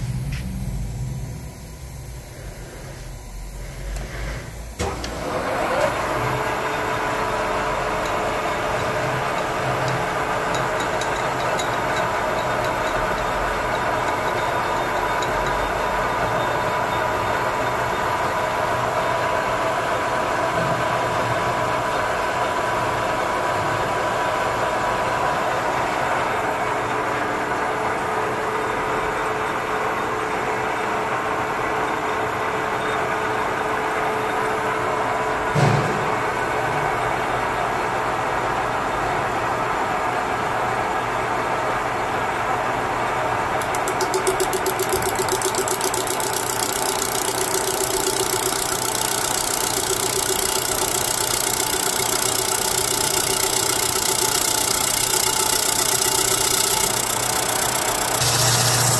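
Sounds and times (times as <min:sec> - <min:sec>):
lathe running: 0:00.7 - 0:20.4, 0:43.6 - 0:58.9.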